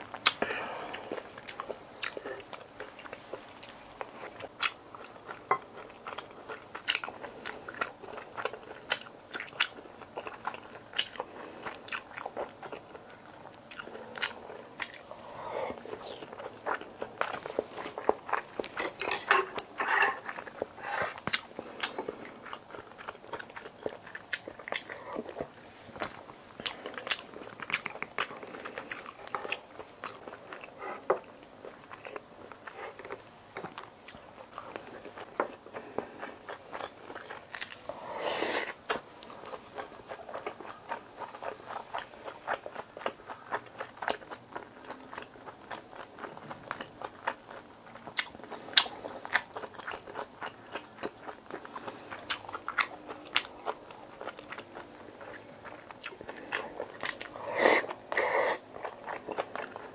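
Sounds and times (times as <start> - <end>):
chewing food close up: 0.0 - 59.9.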